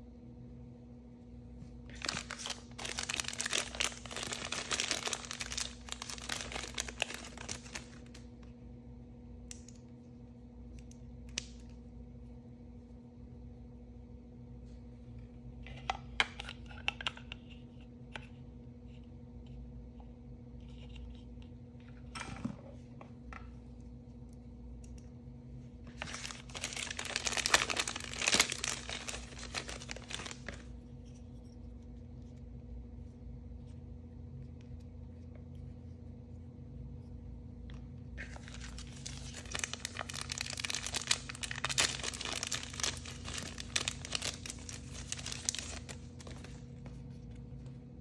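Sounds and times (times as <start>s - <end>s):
faint steady hum: 0.0s - 48.0s
plastic wrapper crinkling and tearing: 1.8s - 8.3s, 25.9s - 30.8s, 38.2s - 47.0s.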